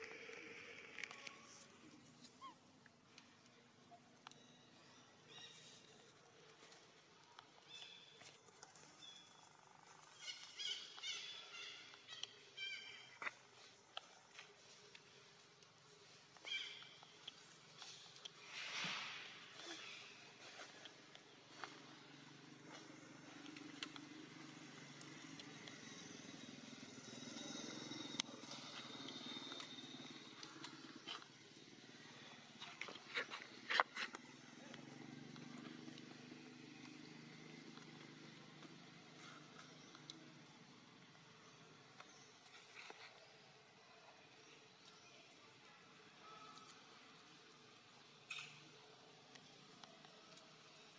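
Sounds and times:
monkey squeaking calls: 2.2 - 2.6
distant motorbike engine: 21.6 - 32.5, 33.4 - 41.6.

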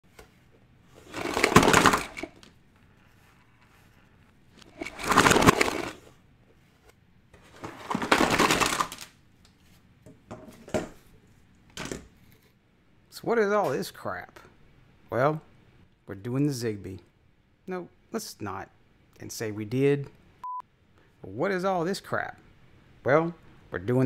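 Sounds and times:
plastic gadgets clattering onto mat: 1.0 - 2.6, 4.6 - 6.1, 7.4 - 9.2.

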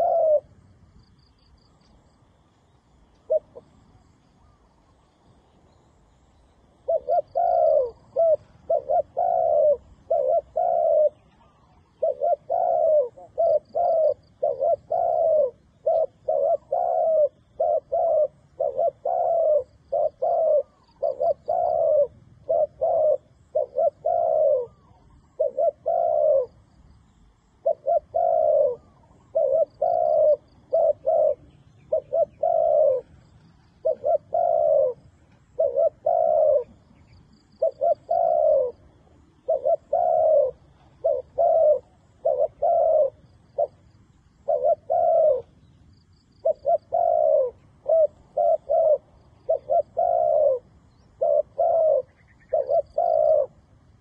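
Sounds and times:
dove cooing: 0.0 - 54.0.

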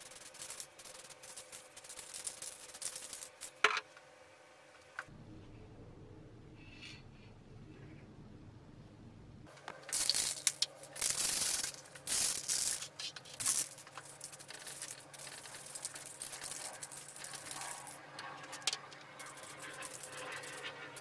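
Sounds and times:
plastic parts clicking and rustling: 9.5 - 21.0
aerosol spray can hissing: 9.9 - 16.7.

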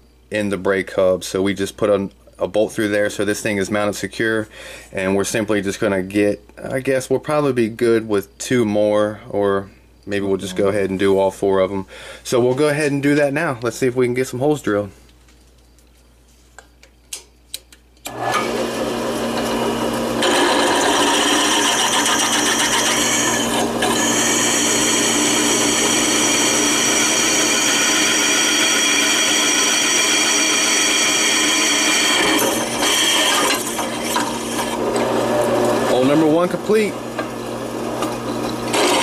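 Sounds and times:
drill press grinding through metal: 18.1 - 39.0.

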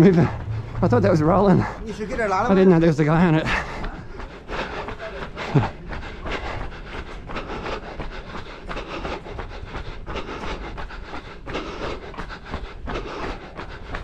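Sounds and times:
footsteps on pavement: 0.0 - 14.0
person breathing: 3.5 - 14.0.

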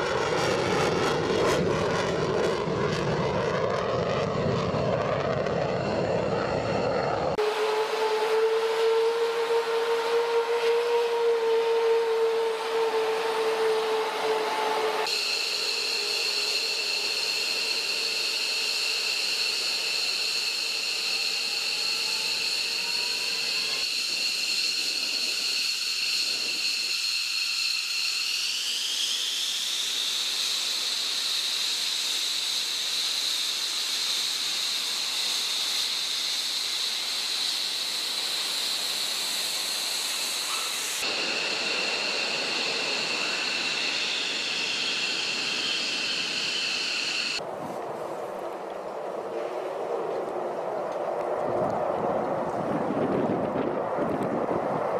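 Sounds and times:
jet engine turbine whine: 0.0 - 54.9.

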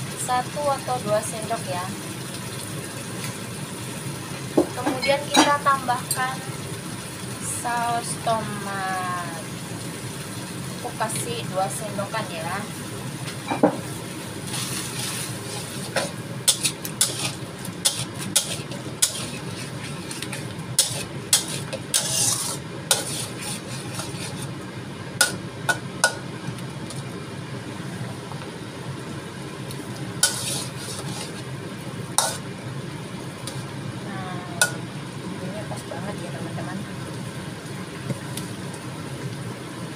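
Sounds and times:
sauce simmering hiss: 0.0 - 39.9
metal spatula scraping a wok: 14.5 - 24.6, 30.2 - 31.5, 32.2 - 32.4.

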